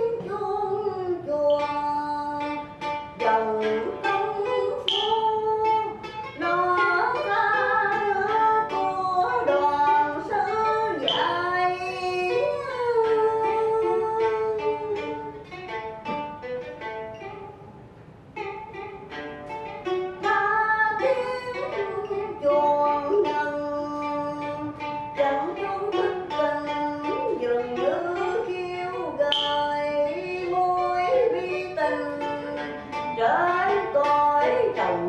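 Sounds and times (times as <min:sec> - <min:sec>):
plucked lute notes: 0:00.0 - 0:35.0
person singing: 0:03.2 - 0:15.3, 0:20.2 - 0:35.0.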